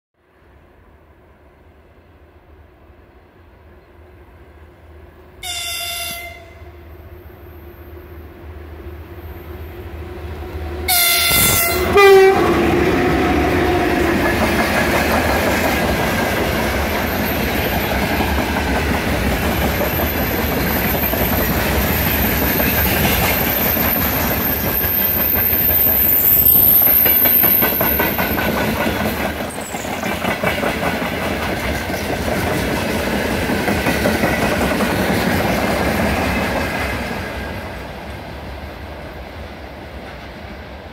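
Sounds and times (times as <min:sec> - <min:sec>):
locomotive horn blasts: 0:05.4 - 0:06.9, 0:10.9 - 0:14.0
train wagons rumbling: 0:09.0 - 0:40.9
wheels clickety-clack: 0:13.9 - 0:38.3.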